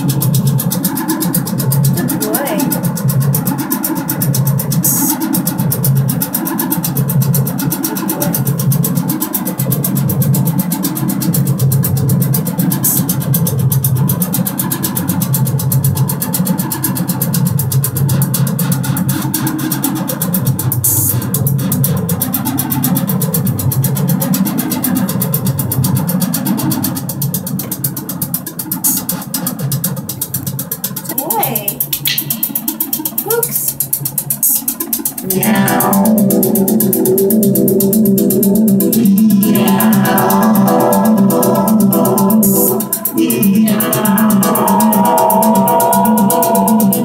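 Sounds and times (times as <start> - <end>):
buzzy synthesizer note: 0.0 - 15.0, 35.2 - 47.0.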